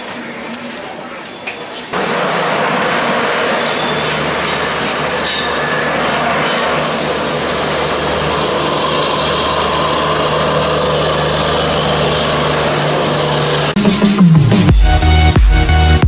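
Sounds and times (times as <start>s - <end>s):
train wheels rumbling on rails: 0.0s - 13.8s
electronic music: 13.8s - 16.0s.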